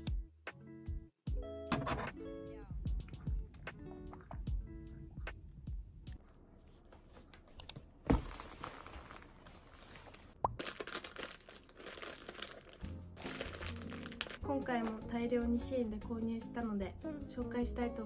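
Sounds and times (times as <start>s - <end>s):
plastic bags rustling and crinkling: 8.1s - 15.0s.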